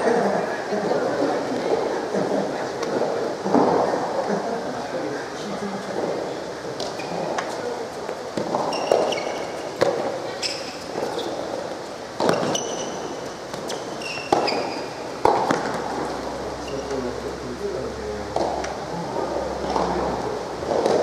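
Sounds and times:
shoes squeaking on court: 6.8 - 7.4, 8.4 - 16.9
tennis ball hits and bounces: 8.4 - 10.1, 12.2 - 16.1, 20.6 - 21.0.

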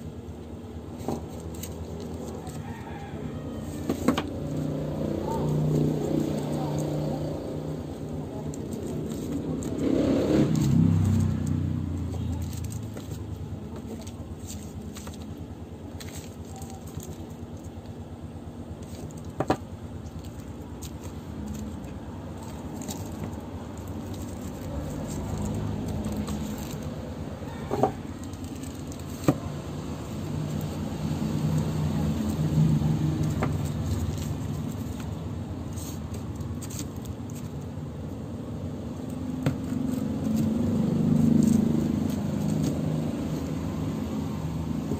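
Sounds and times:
soap bars handled: 10.6 - 32.6.

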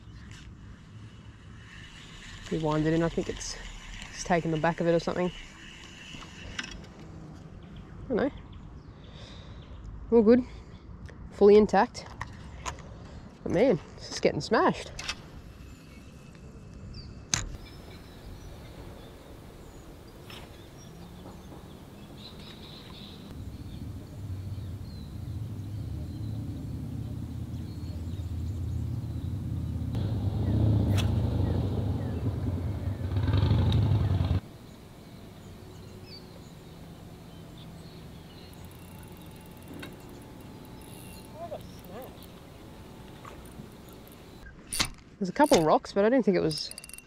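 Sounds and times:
low engine hum: 17.6 - 44.5.

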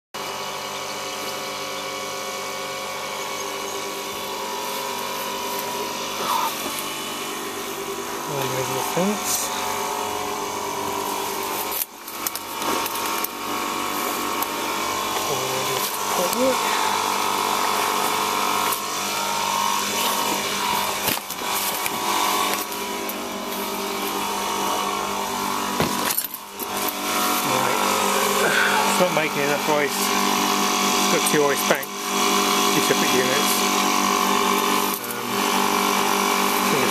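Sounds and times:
refrigeration unit hum and whine: 0.2 - 36.9
handling knocks: 25.8 - 26.4.

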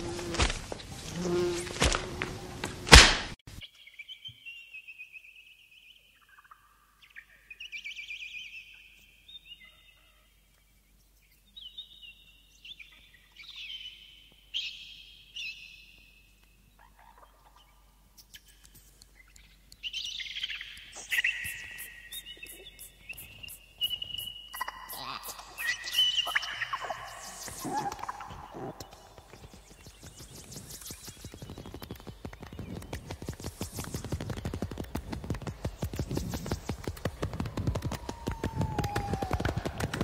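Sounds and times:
fly buzzing: 0.0 - 3.0
loud swat: 2.9 - 3.4
rapid clicking and chirps: 18.2 - 40.0
high chirping bird calls: 19.2 - 31.7.

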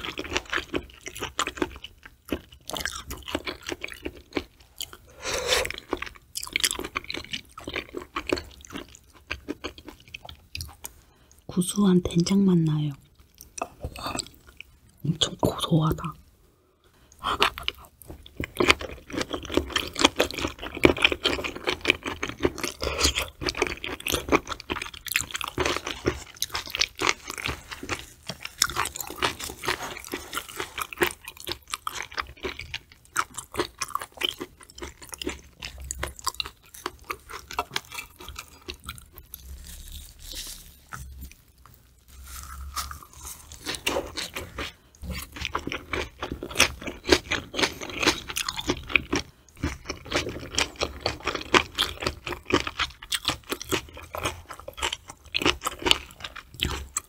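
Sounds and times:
wet chewing clicks and smacks: 43.6 - 57.0.

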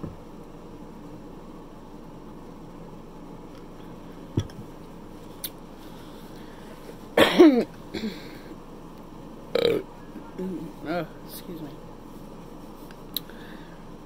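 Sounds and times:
woman coughing: 7.2 - 8.2.

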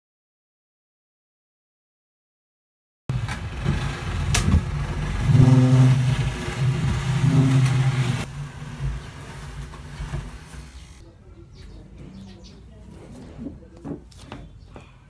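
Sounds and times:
low droning motor hum: 3.1 - 10.5.

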